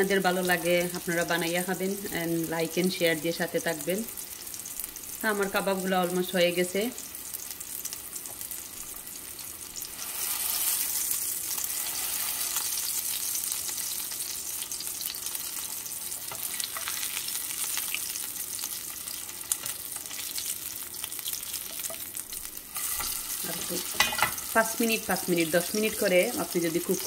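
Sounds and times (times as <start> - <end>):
kebabs sizzling in a frying pan: 0.0 - 27.0
spatula scraping and tapping pan: 22.8 - 24.5.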